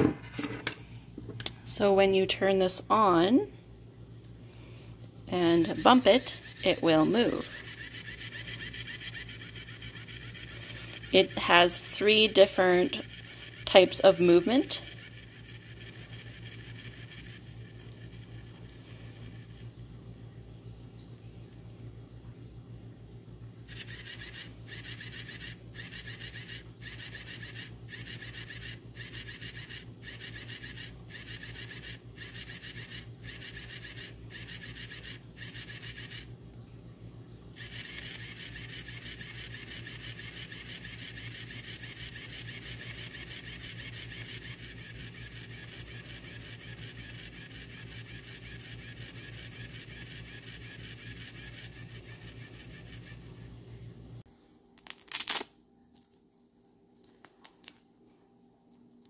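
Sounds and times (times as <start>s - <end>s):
small electric motor whirring: 5.3s - 20.3s, 23.7s - 36.3s, 37.6s - 54.0s.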